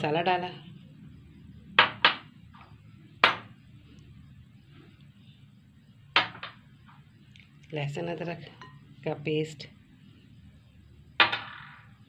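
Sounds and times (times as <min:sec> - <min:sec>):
spoon clinking against bowl: 0:08.6 - 0:08.8.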